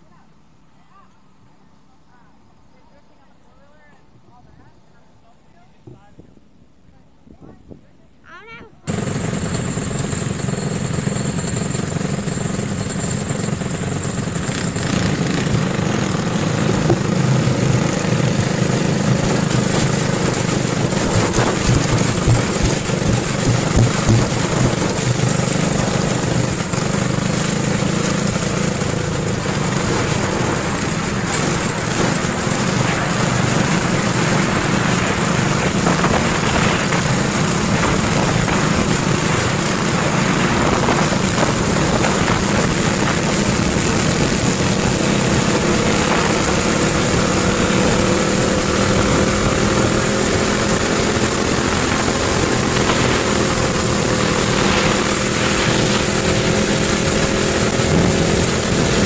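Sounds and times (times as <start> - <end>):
kart engine running: 8.9 - 59.0
steady rushing noise: 13.1 - 59.0.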